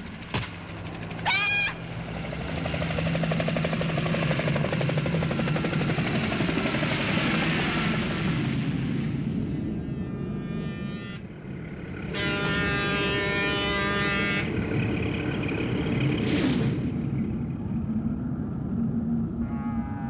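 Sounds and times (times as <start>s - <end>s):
steady low rumble: 1.8s - 20.0s
faint horn-like tones: 9.6s - 14.8s, 19.4s - 20.0s
ship's horn blowing: 9.6s - 14.9s, 19.4s - 20.0s.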